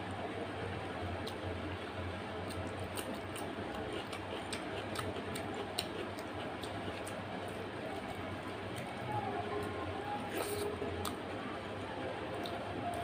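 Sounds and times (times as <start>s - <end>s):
steady low hum: 0.0s - 13.0s
chewing and lip smacking: 2.4s - 8.9s, 10.3s - 11.2s, 12.4s - 13.0s.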